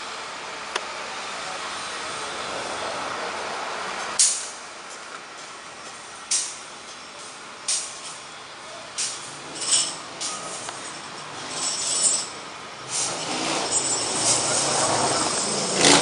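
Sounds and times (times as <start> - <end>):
construction machinery humming: 0.0 - 16.0.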